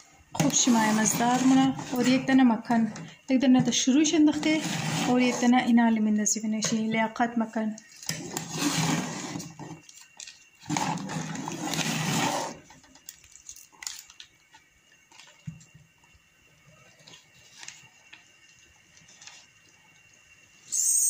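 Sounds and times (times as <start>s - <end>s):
spoon scraping in a pot: 0.4s - 2.3s, 4.3s - 5.7s, 8.1s - 9.7s.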